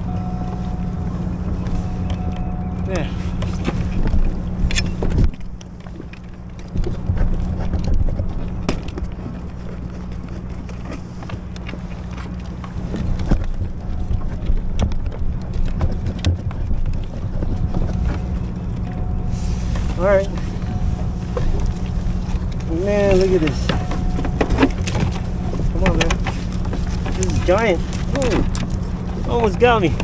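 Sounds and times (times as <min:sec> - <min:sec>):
low mechanical hum: 0:00.0 - 0:30.0
short knocks and handling clatter: 0:03.2 - 0:30.0.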